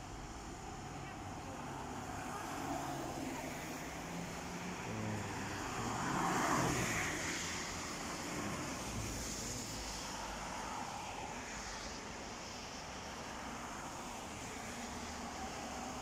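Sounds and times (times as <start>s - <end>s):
car engine noise: 0.0s - 11.5s
car passing: 0.0s - 11.7s
rush of distant cars: 0.0s - 16.0s
tyres hissing on wet road: 0.0s - 16.0s.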